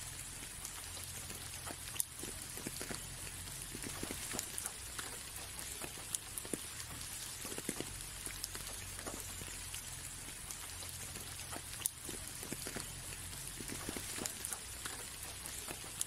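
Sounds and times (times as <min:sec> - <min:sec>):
rain on a window pane: 0:00.0 - 0:16.0
raindrop taps: 0:00.4 - 0:16.0.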